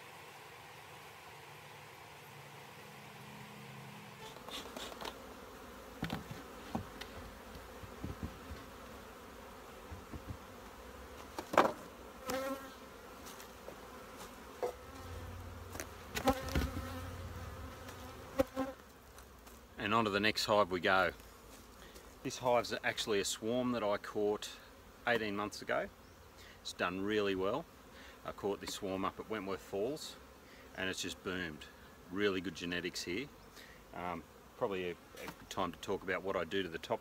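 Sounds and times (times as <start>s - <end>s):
bees buzzing: 0.0s - 20.2s
wooden hive boxes knocking: 6.0s - 7.2s, 7.8s - 8.7s, 9.9s - 10.5s, 16.2s - 17.0s.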